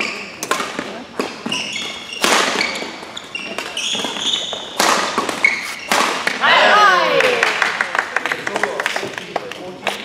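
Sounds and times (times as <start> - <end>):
shoes squeaking on court floor: 0.0 - 6.3
rackets striking shuttlecock: 0.0 - 6.5.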